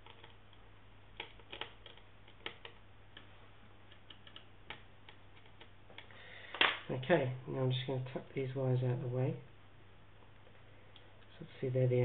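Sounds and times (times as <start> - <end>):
fingers clicking on small plastic parts: 0.0 - 0.6, 1.2 - 6.1.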